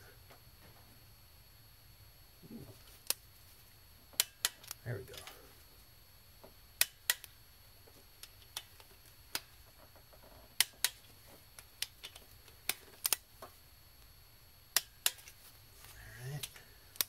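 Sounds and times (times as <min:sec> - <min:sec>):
torque wrench clicking: 0:06.8 - 0:07.4.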